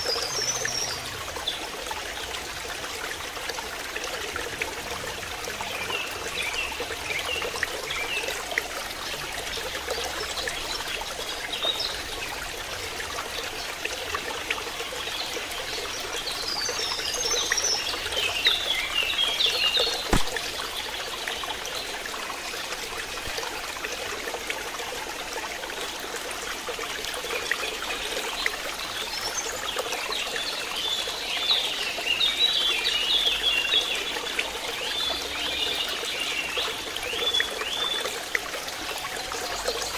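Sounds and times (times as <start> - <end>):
water trickling: 0.0 - 39.9
sharp click: 20.1 - 20.5.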